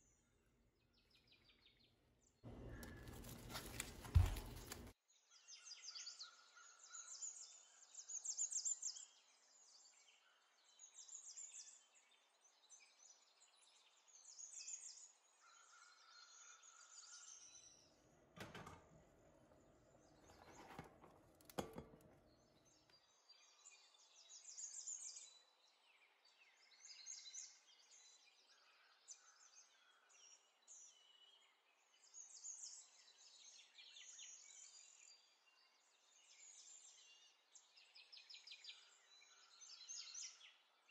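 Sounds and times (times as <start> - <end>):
faint birds chirping: 0.0 - 40.9
cabbage rustling into bowl: 2.5 - 5.0.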